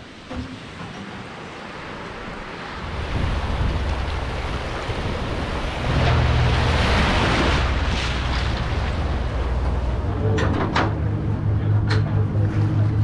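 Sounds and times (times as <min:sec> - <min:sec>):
small waves washing onto sand: 0:00.0 - 0:10.1
boat engine idling: 0:01.3 - 0:13.0.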